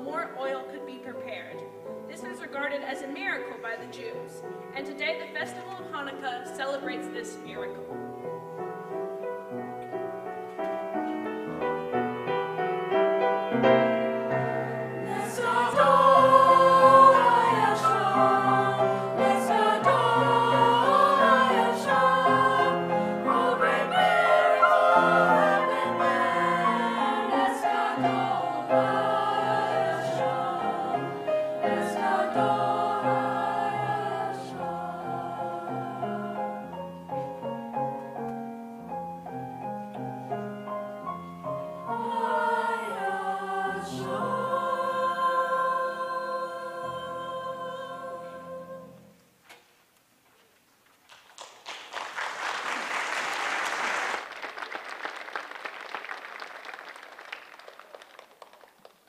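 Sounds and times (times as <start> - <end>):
grand piano: 0.0 - 49.4
choir singing: 14.2 - 36.8, 41.7 - 49.2
audience applauding: 51.1 - 59.0.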